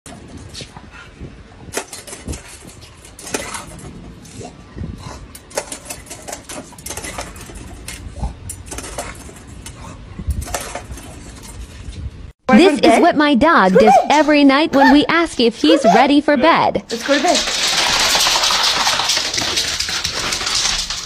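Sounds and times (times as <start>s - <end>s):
pedal fountain clacking: 16.9s - 21.0s
water splashing: 16.9s - 21.0s.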